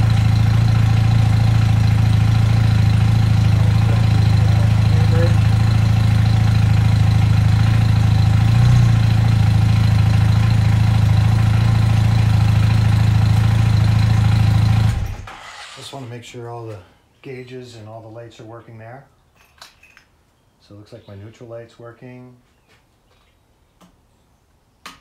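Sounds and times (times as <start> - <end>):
motorcycle engine idling: 0.0 - 15.3.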